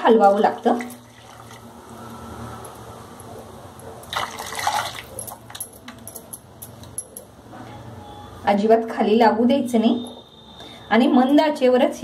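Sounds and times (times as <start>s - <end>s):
liquid sloshing and splashing: 0.5s - 2.0s, 4.1s - 5.6s.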